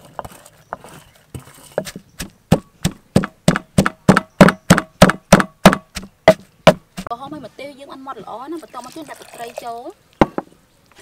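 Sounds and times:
pestle pounding in mortar: 0:01.8 - 0:07.1.

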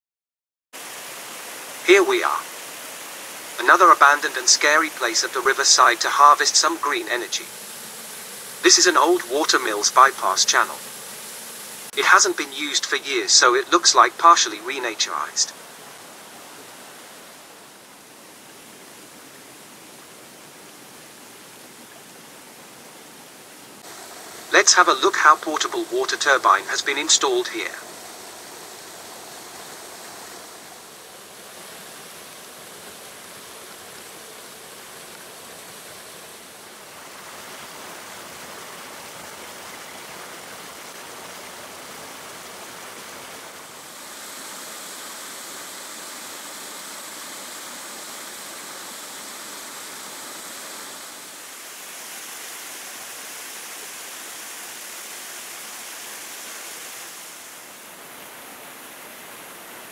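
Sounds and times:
water rushing over a weir: 0:00.8 - 0:59.9.

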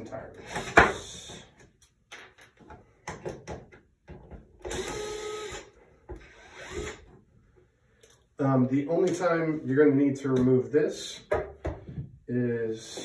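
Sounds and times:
electric screwdriver motor: 0:04.7 - 0:05.7, 0:06.3 - 0:07.0.

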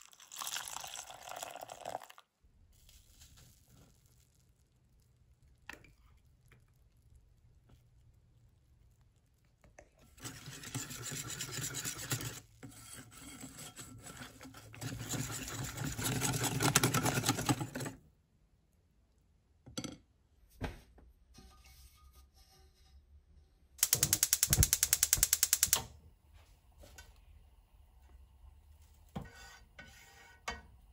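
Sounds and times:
whisk beating batter in bowl: 0:10.0 - 0:17.9
gas hob igniter clicking: 0:23.8 - 0:25.9.

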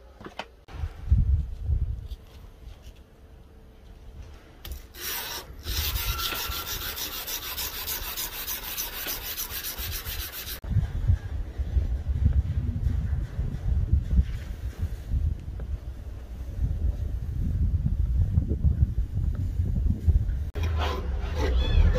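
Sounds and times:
sanding a steel knife blade: 0:04.9 - 0:10.6.

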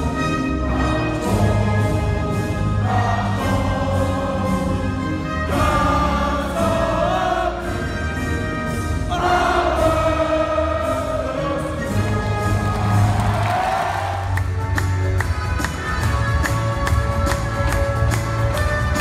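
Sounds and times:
crowd singing anthem: 0:00.0 - 0:07.9, 0:09.0 - 0:14.4
orchestral backing: 0:00.0 - 0:19.0.

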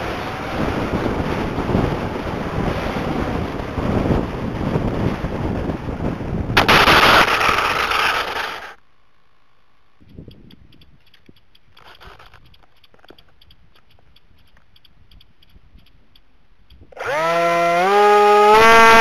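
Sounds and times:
wind rushing over microphone: 0:00.0 - 0:08.7
model plane crashing on road: 0:06.4 - 0:08.8
plane skidding on road: 0:06.6 - 0:08.8.

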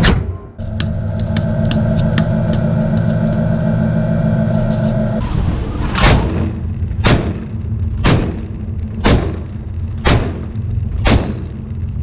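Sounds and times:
steady low rumble: 0:00.6 - 0:12.0
deck gun firing: 0:07.0 - 0:11.6.

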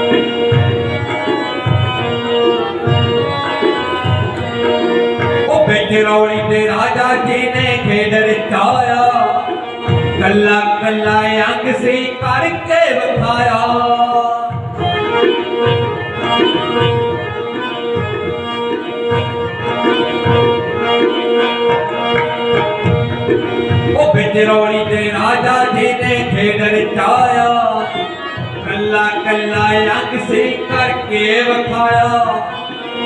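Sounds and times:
man singing: 0:05.3 - 0:14.8, 0:23.8 - 0:33.0
hand drum beat: 0:13.2 - 0:24.6.

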